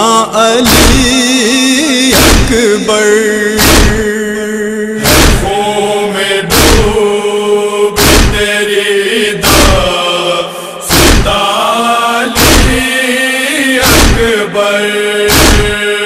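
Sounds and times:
voices chanting a lament: 0.0 - 16.0
chest-beating thumps: 0.7 - 1.2, 2.1 - 2.6, 3.6 - 4.2, 5.0 - 5.6, 6.5 - 7.0, 8.0 - 8.5, 9.4 - 9.9, 10.9 - 11.4, 12.3 - 12.8, 13.8 - 14.4, 15.3 - 15.8.

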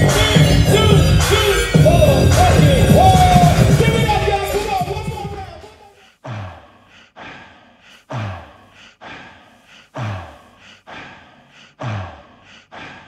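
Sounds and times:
deep drum machine kick: 0.0 - 5.5
hissing breath-like noise: 5.8 - 13.0.

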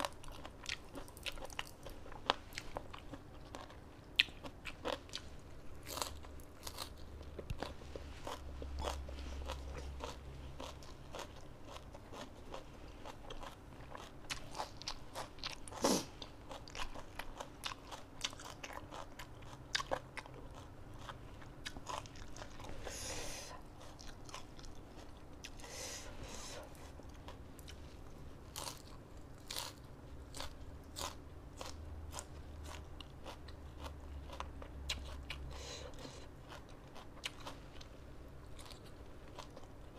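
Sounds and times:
person crunching raw vegetables: 0.0 - 25.7, 28.4 - 39.9.

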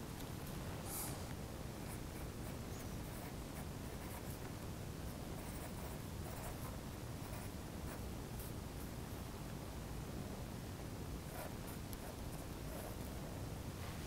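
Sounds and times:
low room hum: 0.0 - 14.0
pencil scratching on paper: 5.4 - 8.0.

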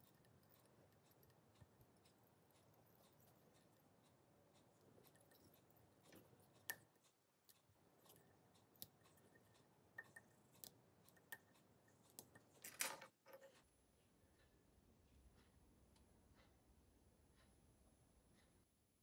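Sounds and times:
small tools clicking and tapping: 0.0 - 3.9, 4.6 - 13.6.

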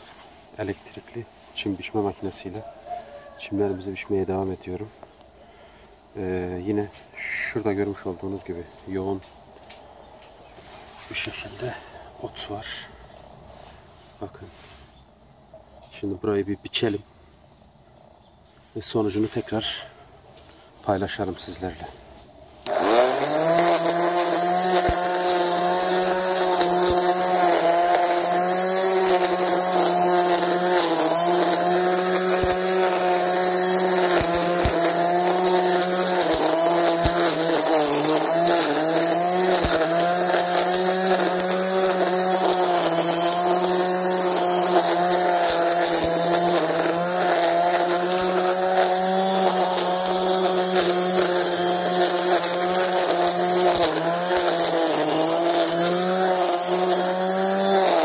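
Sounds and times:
trimmer line cutting weeds: 0.0 - 2.5, 22.6 - 58.0
string trimmer motor whine: 22.6 - 58.0.

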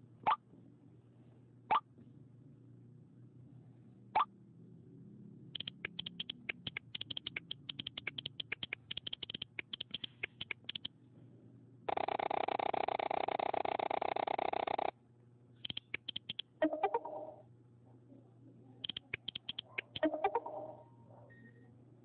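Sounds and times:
phone keyboard clicks: 5.6 - 10.9, 15.6 - 16.5, 18.8 - 20.1.

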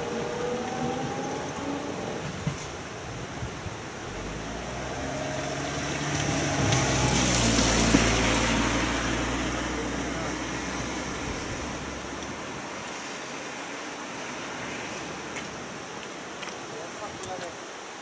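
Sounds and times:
vehicle passing by: 0.0 - 2.4, 4.1 - 15.4.

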